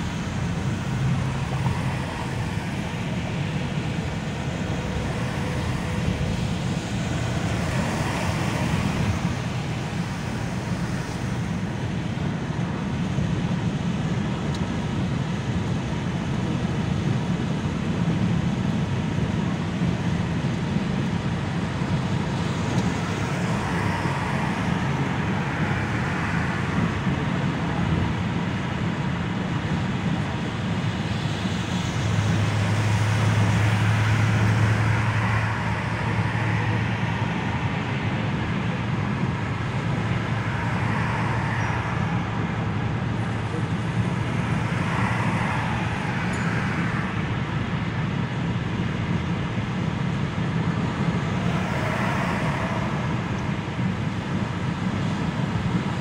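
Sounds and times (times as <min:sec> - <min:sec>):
low engine and road hum: 0:00.0 - 0:56.0
tyre hiss on wet road: 0:51.4 - 0:52.9.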